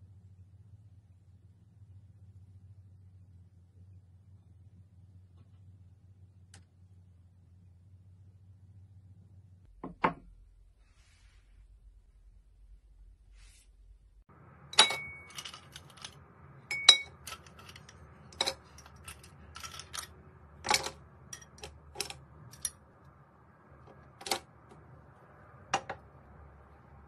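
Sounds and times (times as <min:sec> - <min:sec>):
ice cubes clinking into a glass: 0:14.8 - 0:20.1.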